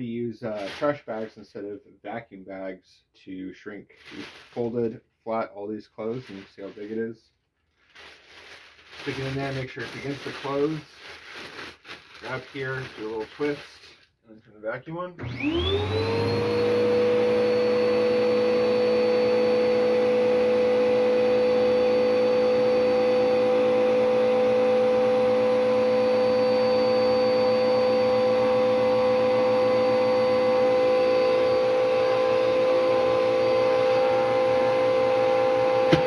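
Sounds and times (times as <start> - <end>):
plastic bag being sucked: 0.5 - 1.2, 3.9 - 5.0, 6.0 - 14.2
vacuum cleaner motor whine: 15.2 - 36.0.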